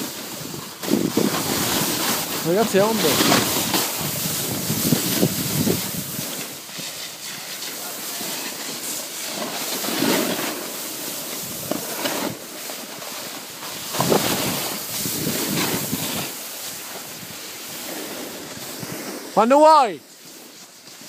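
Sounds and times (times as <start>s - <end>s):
snowboard scraping over snow: 0.0s - 21.0s.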